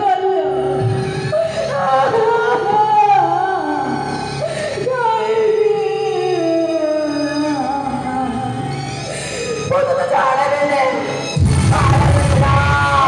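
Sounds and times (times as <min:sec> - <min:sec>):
instrumental backing music: 0:00.0 - 0:13.0
person singing over loudspeaker: 0:09.7 - 0:13.0.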